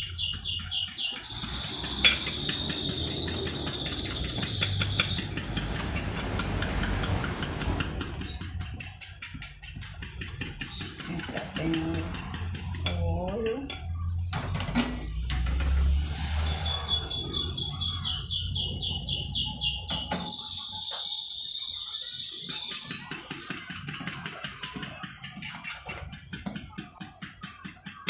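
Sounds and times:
fork beating eggs in a dish: 0:00.0 - 0:13.9, 0:22.4 - 0:28.0
bird chirping with high trill: 0:00.0 - 0:14.4, 0:16.3 - 0:23.7.

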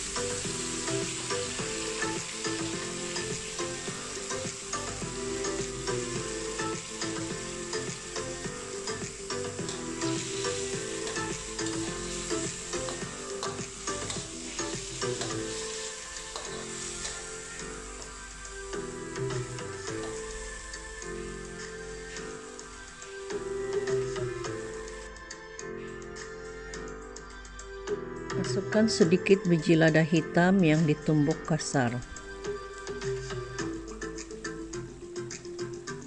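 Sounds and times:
beef sizzling in a wok: 0:00.0 - 0:25.1.

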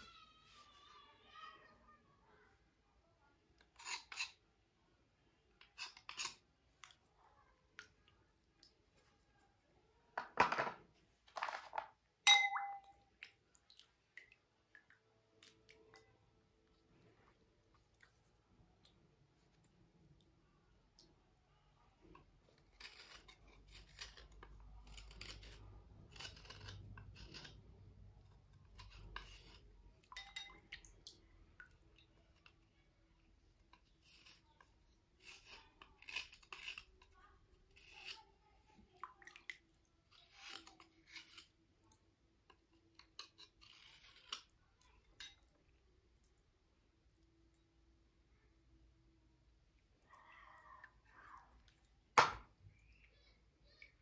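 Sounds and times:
scratchy scraping of stone cubes: 0:22.6 - 0:27.7, 0:35.2 - 0:37.1, 0:43.2 - 0:44.5.

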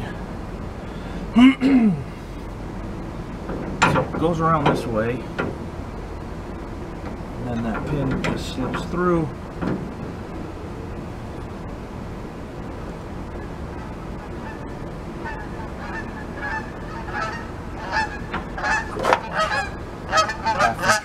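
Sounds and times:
geese honking: 0:13.3 - 0:21.0.

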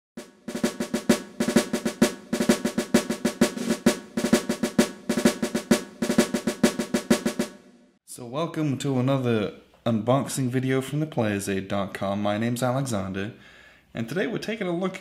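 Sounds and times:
drum rolls and strokes: 0:00.2 - 0:07.8.

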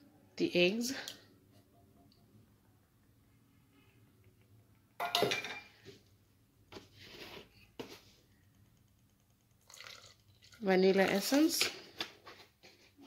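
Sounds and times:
steel bowl clattering on counter: 0:05.0 - 0:05.8
kitchen handling noise: 0:05.0 - 0:05.9.

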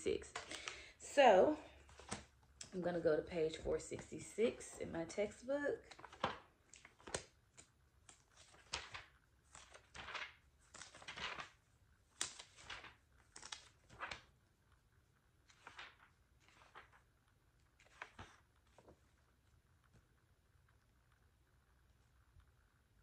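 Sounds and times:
book pages turning: 0:01.7 - 0:02.8, 0:05.3 - 0:14.8, 0:15.4 - 0:20.1.

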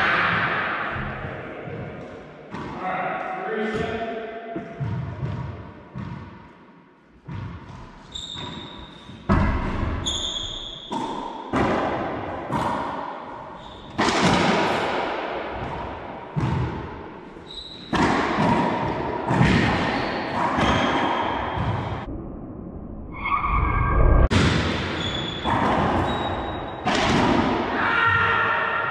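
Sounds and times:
sneakers squeaking on hardwood floor: 0:07.3 - 0:11.1, 0:13.6 - 0:14.0, 0:17.4 - 0:18.0, 0:19.4 - 0:21.9, 0:24.9 - 0:26.8.

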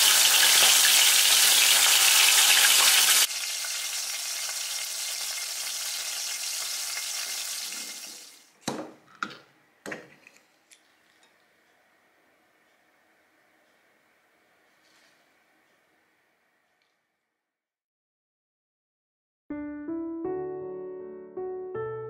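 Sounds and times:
fish sizzling in hot oil: 0:00.0 - 0:08.5.

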